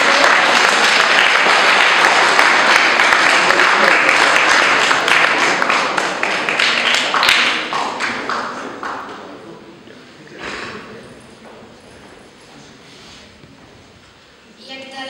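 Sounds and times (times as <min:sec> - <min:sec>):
audience applause: 0:00.0 - 0:09.5.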